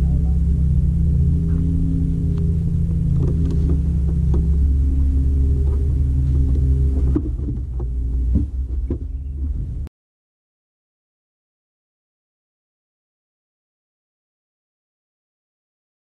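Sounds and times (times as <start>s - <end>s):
low motor hum: 0.0s - 9.9s.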